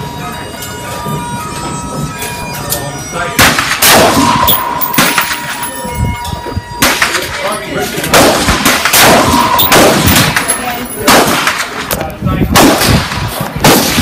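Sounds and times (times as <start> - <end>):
rifle shots: 3.4 - 5.7, 8.1 - 11.9, 12.5 - 14.0.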